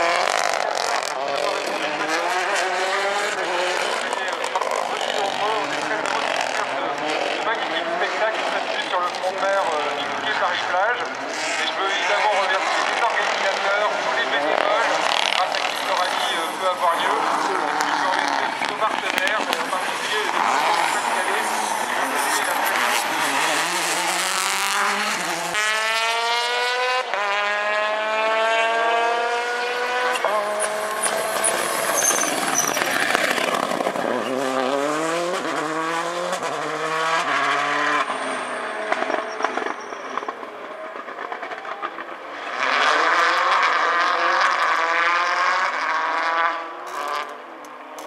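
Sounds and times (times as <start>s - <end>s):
rally car engine accelerating: 0.0s - 48.0s.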